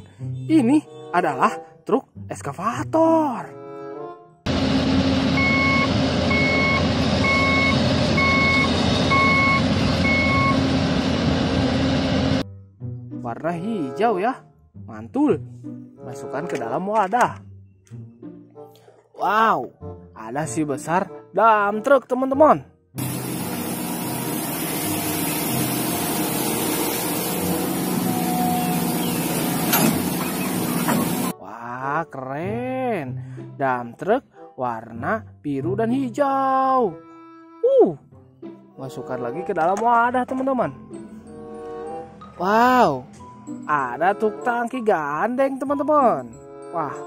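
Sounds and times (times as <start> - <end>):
diesel engine running: 4.5 - 12.4, 23.0 - 31.3
reversing alarm beeping: 5.2 - 11.1, 27.3 - 31.3
sand pouring into truck bed: 23.0 - 31.3.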